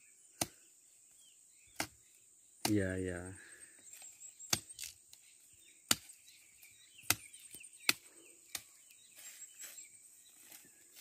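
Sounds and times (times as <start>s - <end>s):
machete chopping dry brush: 1.7s - 3.0s, 4.0s - 5.2s, 5.8s - 9.0s.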